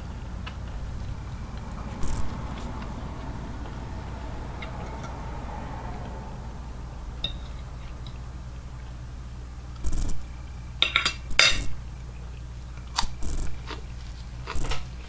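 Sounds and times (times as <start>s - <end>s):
person chewing crunchy food: 0.0s - 5.2s, 12.0s - 15.0s
low steady hum: 0.0s - 15.0s.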